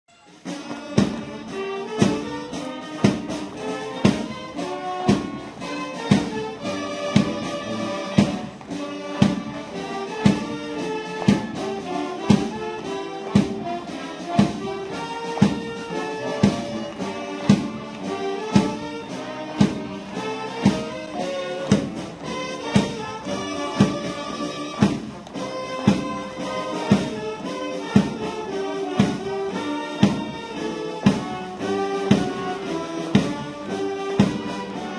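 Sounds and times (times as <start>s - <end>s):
instrumental music with steady beat: 0.1s - 34.9s.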